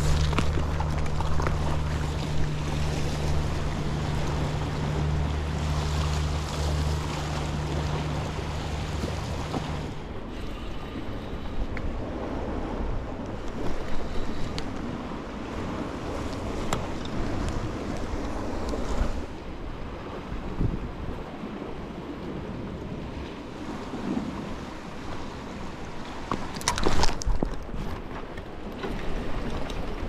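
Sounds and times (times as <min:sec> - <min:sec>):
low engine drone: 0:00.0 - 0:23.2
sea waves against rocks: 0:00.0 - 0:30.0
wind buffeting microphone: 0:00.0 - 0:30.0.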